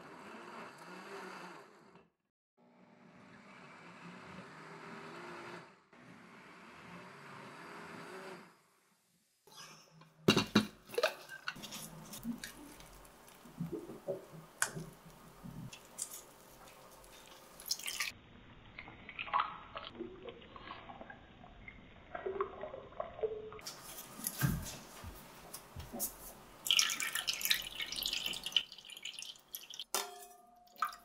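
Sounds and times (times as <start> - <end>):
wet squishing and scraping: 10.9 - 18.1
liquid dripping into bowl: 12.1 - 18.1, 26.6 - 29.9.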